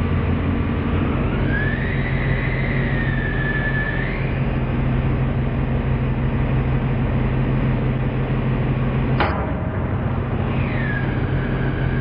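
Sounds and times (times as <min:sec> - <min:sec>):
hydraulic press humming: 0:00.2 - 0:12.0.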